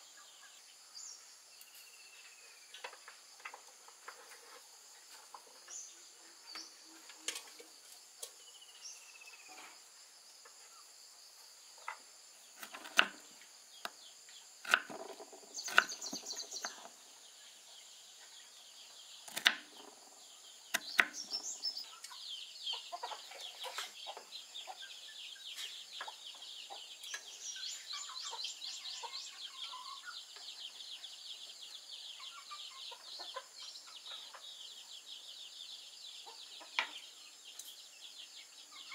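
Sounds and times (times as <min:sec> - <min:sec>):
insects chirping: 0:00.0 - 0:38.9
chicken clucking: 0:02.8 - 0:08.0, 0:20.9 - 0:31.1, 0:32.0 - 0:34.9, 0:36.2 - 0:37.1
knife chopping on cutting board: 0:19.3 - 0:19.6.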